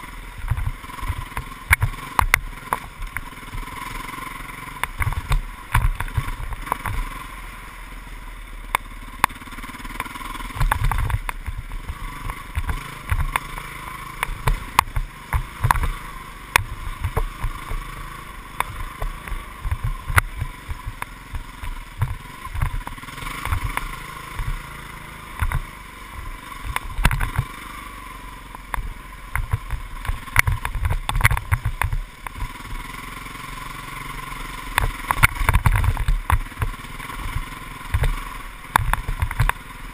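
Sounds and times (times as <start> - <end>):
dirt bike engine running: 0.0 - 39.9
low thumps and knocks: 14.2 - 17.9, 18.6 - 24.7, 25.3 - 27.5, 28.8 - 32.5.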